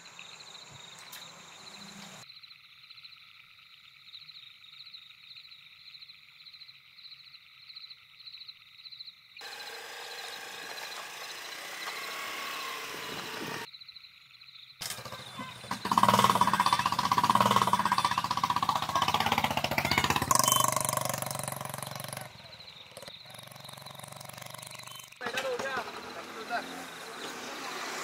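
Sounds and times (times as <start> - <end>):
crickets chirping: 0.0 - 28.0
motor scooter riding off: 9.4 - 13.7, 14.8 - 28.0.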